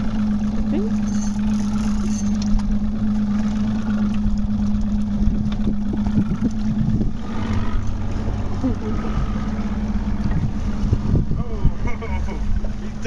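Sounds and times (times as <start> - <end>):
boat engine idling: 0.0 - 13.0.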